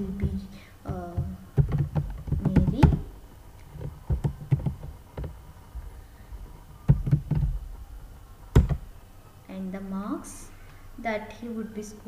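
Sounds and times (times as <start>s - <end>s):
keyboard typing: 0.9s - 5.4s.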